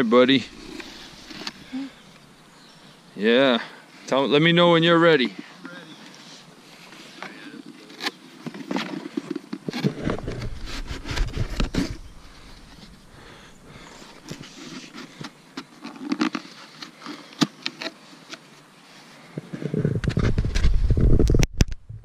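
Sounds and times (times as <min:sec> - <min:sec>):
cardboard box scraping and clicking: 0:07.9 - 0:13.0
low rumble: 0:09.9 - 0:14.4.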